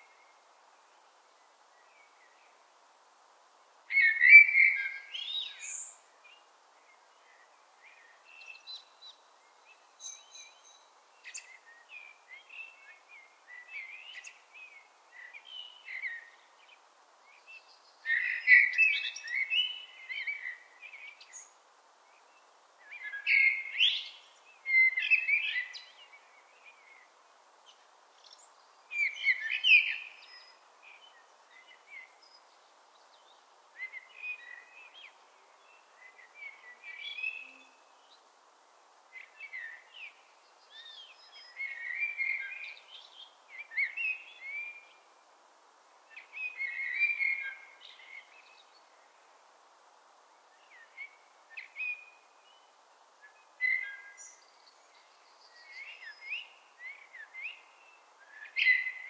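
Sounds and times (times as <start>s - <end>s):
blackbird singing: 53.3s - 59.0s.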